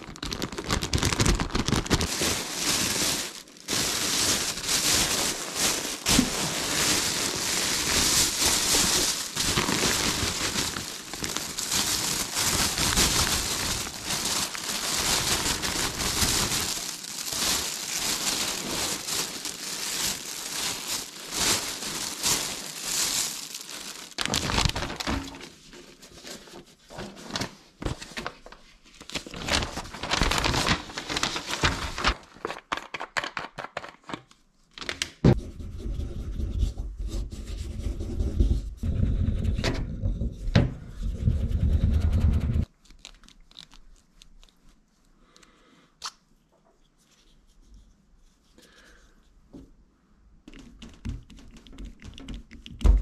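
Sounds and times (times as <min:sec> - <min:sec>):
plastic bag rustling: 0:00.0 - 0:34.1
paper rustling: 0:00.0 - 0:35.0.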